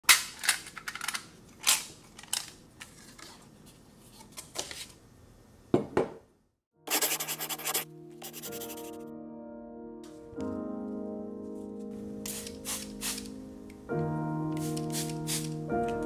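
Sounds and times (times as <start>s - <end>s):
fast dense scratching: 6.9s - 9.0s.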